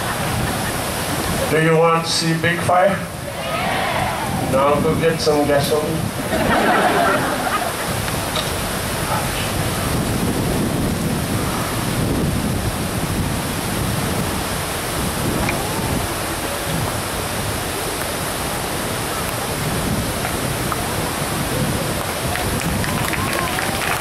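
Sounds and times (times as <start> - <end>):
wind buffeting microphone: 0.0 - 1.6, 2.4 - 24.0
faint crowd voices: 2.9 - 7.8, 20.3 - 24.0.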